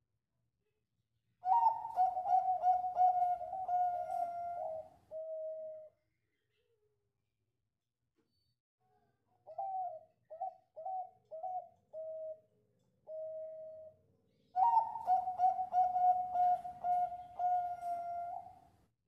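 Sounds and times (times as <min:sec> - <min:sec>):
dove cooing: 0:01.4 - 0:05.9, 0:09.4 - 0:12.5, 0:13.1 - 0:13.9, 0:14.6 - 0:18.6.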